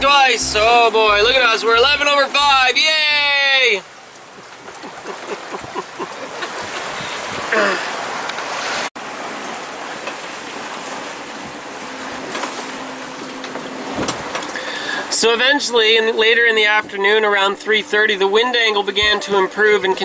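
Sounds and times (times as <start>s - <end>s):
water rushing: 0.0s - 20.0s
wind rushing: 4.3s - 8.9s.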